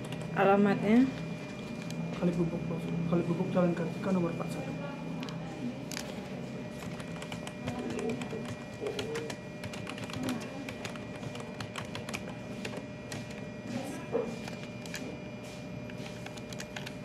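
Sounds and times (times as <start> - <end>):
typing on a keyboard: 6.8 - 13.4, 15.9 - 17.0.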